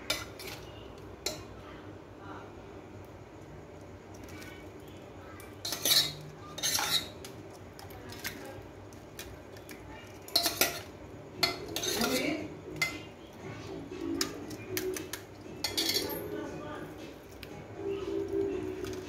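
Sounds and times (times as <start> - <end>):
metal spoon scraping steel plate: 0.0 - 1.5, 5.6 - 7.3, 10.3 - 13.0, 14.1 - 16.4.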